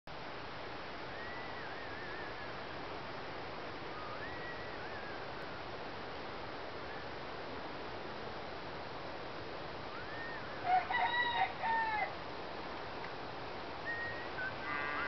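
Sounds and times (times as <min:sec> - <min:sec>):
wind hiss on microphone: 0:00.1 - 0:15.0
high wavering whistles: 0:01.1 - 0:02.6, 0:09.9 - 0:10.5, 0:13.8 - 0:14.7.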